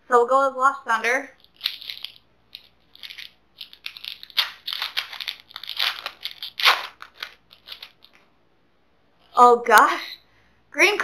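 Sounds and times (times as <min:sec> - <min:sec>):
foil wrapper tearing and crinkling: 0:01.4 - 0:08.2.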